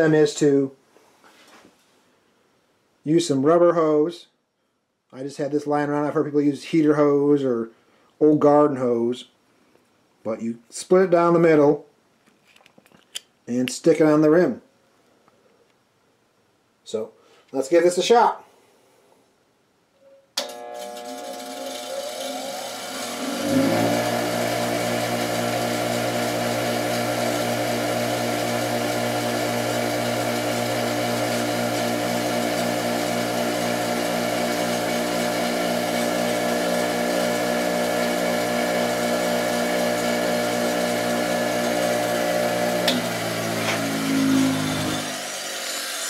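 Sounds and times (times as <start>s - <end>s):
bench grinder motor hum: 20.4s - 46.0s
grinder spinning down: 20.4s - 46.0s.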